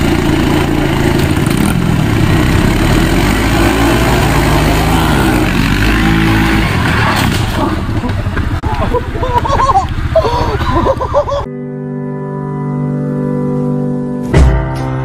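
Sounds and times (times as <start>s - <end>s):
small engines idling and revving: 0.0s - 11.5s.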